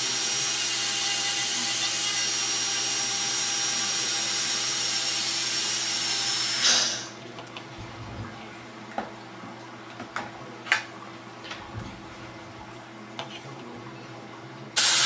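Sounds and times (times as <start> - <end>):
dental drill whine and cutting hiss: 0.0 - 7.2, 14.8 - 15.0.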